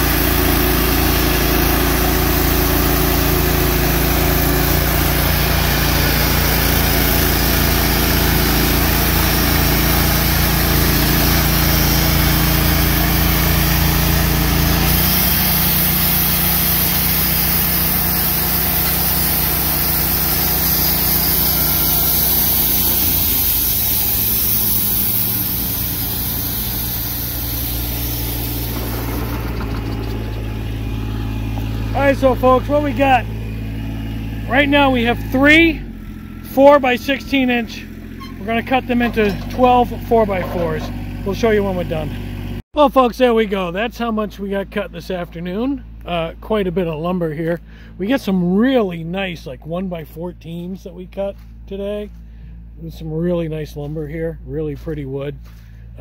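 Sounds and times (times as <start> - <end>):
band sawmill cutting wood: 0.0 - 42.6.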